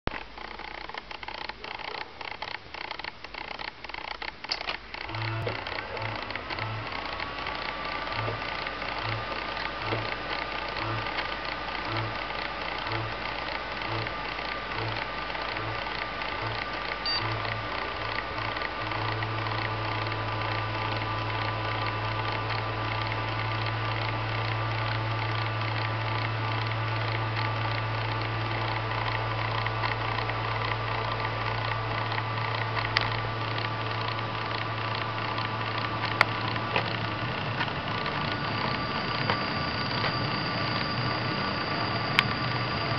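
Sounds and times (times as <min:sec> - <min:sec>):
sharp clicks: 0:00.1 - 0:38.2
cooling fan whirring: 0:00.1 - 0:42.9
low hum: 0:05.0 - 0:42.9
steady tones: 0:05.0 - 0:42.9.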